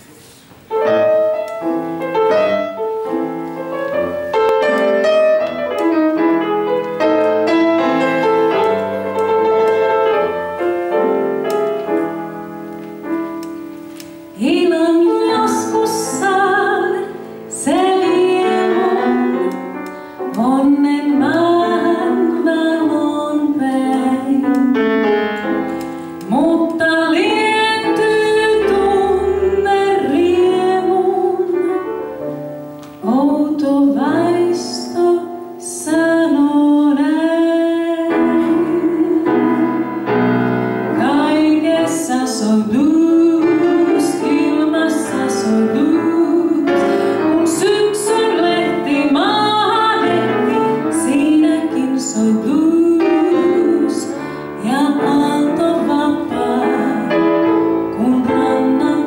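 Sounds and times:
piano playing blues: 0.0 - 59.0
woman singing: 14.3 - 24.8, 26.2 - 32.4, 33.0 - 40.0, 40.9 - 59.0.

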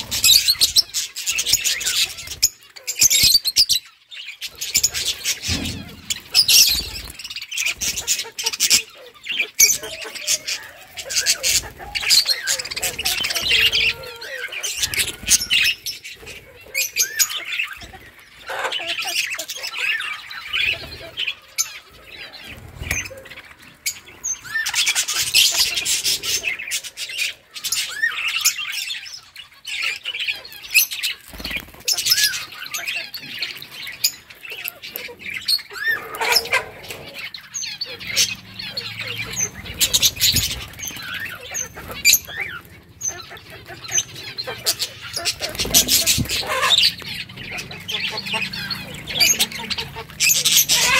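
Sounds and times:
budgerigars chirping and chattering: 0.0 - 50.9
birds pecking at leaves: 29.8 - 50.9.

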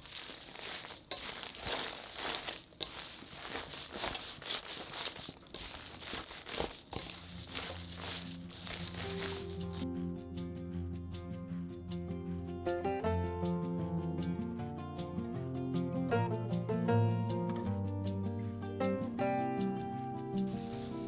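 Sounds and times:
gloved hand squeezing green onions: 0.0 - 9.8, 20.5 - 21.0
wet crinkly rustling of stalks: 0.0 - 9.8, 20.4 - 21.0
music: 6.6 - 21.0.

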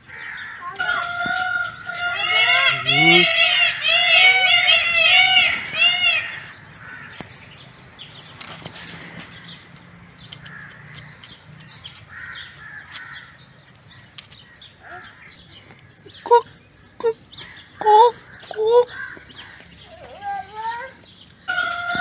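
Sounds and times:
short bird calls: 0.4 - 7.3.

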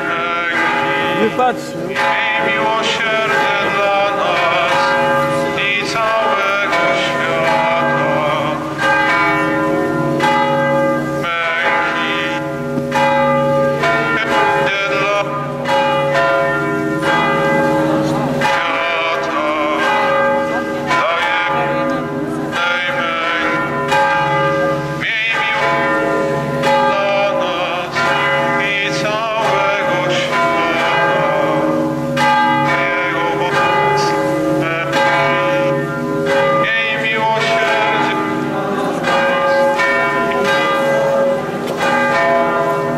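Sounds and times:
church bells ringing: 0.0 - 42.9.

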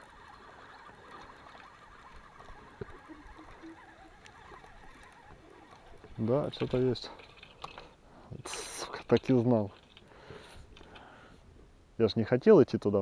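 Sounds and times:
fishing reel whirring: 0.0 - 7.8.

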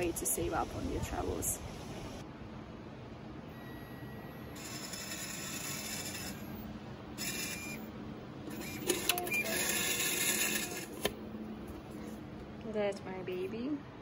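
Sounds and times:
ticket printer running: 3.6 - 11.2.

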